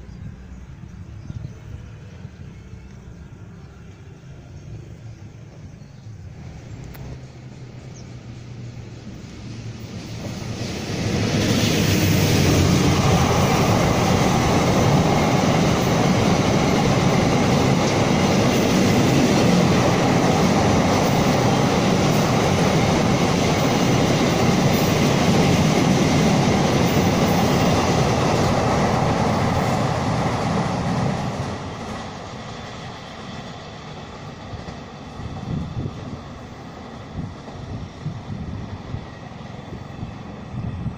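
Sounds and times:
freight train wheels clattering on rails: 9.6 - 39.6.

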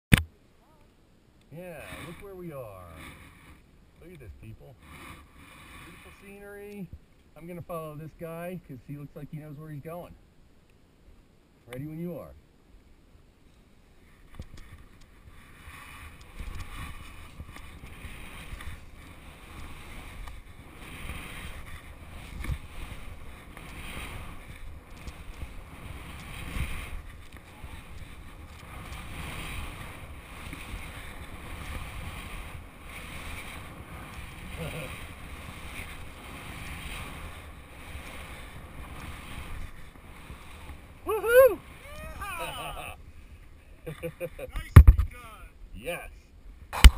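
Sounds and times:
skis swishing through snow: 1.6 - 10.0, 13.9 - 46.0
wind rumbling on microphone: 14.0 - 43.4.

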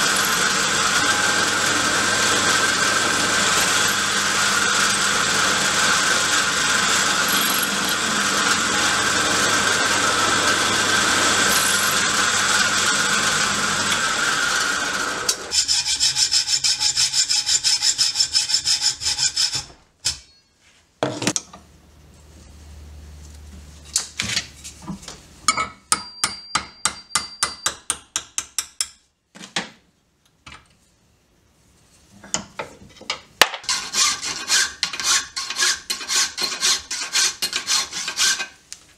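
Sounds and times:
hacksaw cutting steel: 0.0 - 13.2, 33.6 - 38.6
drill press cutting steel: 0.0 - 15.5.

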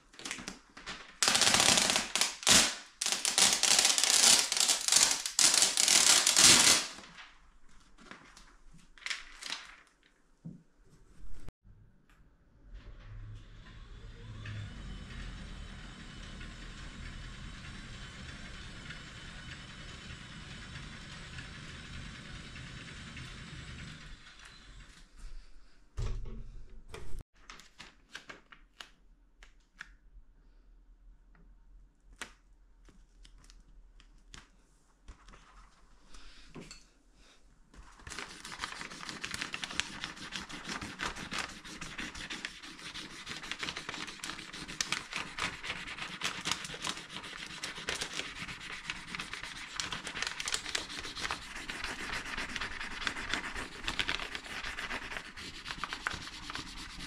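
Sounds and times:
scratchy rubbing: 38.2 - 57.0.

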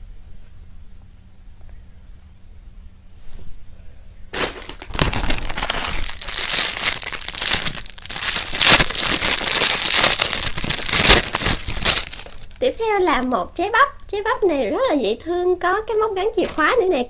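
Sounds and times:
plastic packaging crinkling: 4.3 - 13.4.

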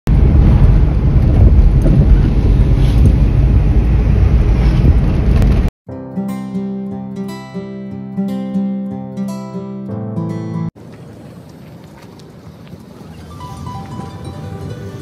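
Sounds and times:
wind and road noise in car: 0.1 - 5.7, 10.8 - 15.0
strummed acoustic guitar music: 5.9 - 10.7.

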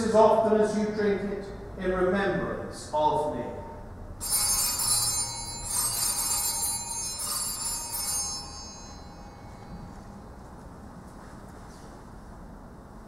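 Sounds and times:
small bell ringing: 4.2 - 10.4.

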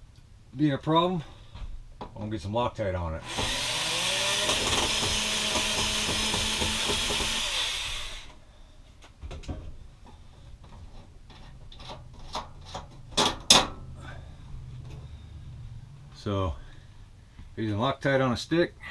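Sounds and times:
cordless drill running: 3.2 - 8.4.

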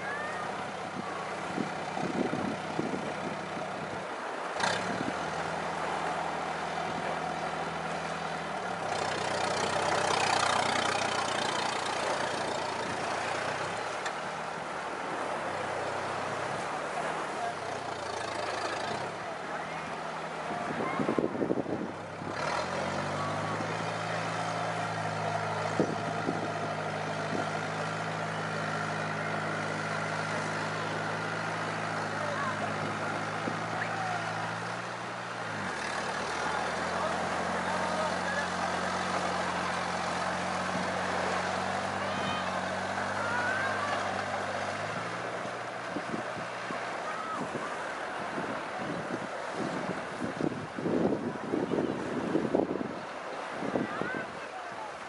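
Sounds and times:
small waves washing on shore: 0.0 - 55.0
tractor engine running: 0.0 - 55.0
wind buffeting microphone: 0.8 - 4.1, 20.5 - 22.6, 25.0 - 27.9, 44.7 - 54.4.

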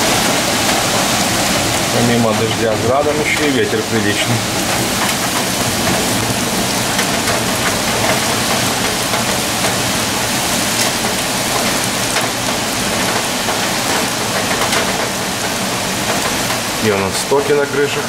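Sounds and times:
hail drumming on roofs: 0.0 - 18.0
heavy rain: 0.0 - 18.0.

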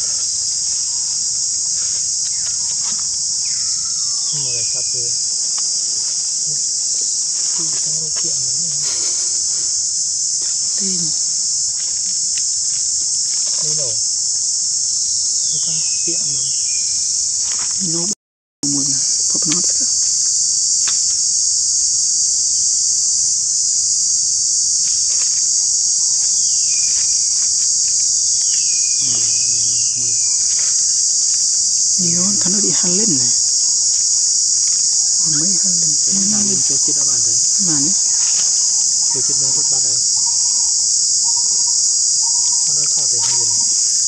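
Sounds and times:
insect chorus drone: 0.0 - 44.0
low indistinct voices: 4.3 - 14.1, 32.0 - 33.4, 35.2 - 40.8, 42.4 - 43.9.

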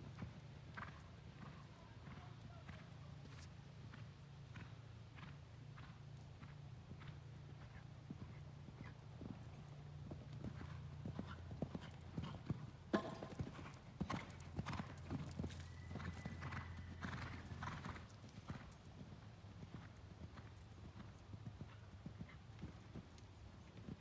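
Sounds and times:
horse hoofbeats on sand: 10.1 - 18.7.

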